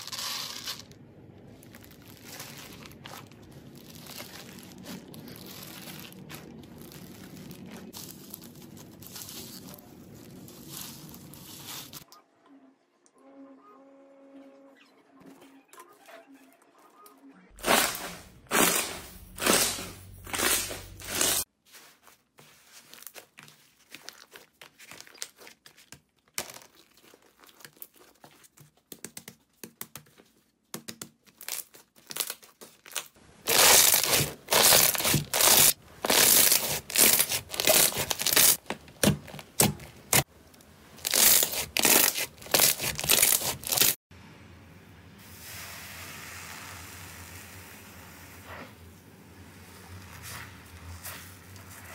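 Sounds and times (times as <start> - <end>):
slime crackling and popping: 31.4 - 40.2, 41.0 - 44.0.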